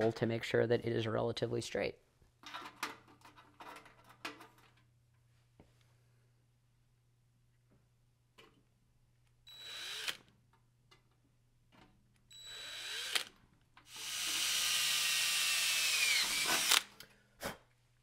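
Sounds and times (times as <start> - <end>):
cordless drill boring sheet metal: 9.6 - 10.2, 12.4 - 13.3, 13.9 - 16.8.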